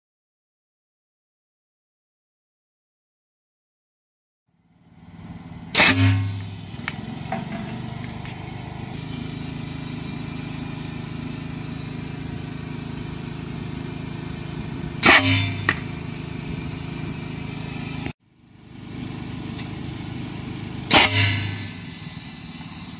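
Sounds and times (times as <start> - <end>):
steady mechanical hum: 4.6 - 22.9
air cannon blast: 5.7 - 6.8, 14.7 - 17.8, 20.9 - 22.9.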